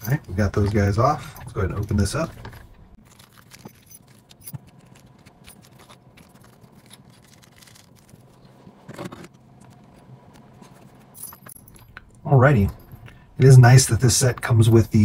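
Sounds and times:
metal parts clinking: 0:00.0 - 0:07.8, 0:11.1 - 0:13.5
plastic crinkling: 0:03.0 - 0:09.9.

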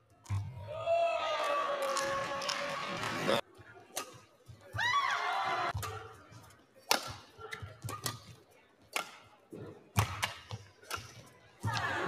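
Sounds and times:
rackets striking shuttlecock: 0:03.9 - 0:04.3, 0:05.7 - 0:12.0.

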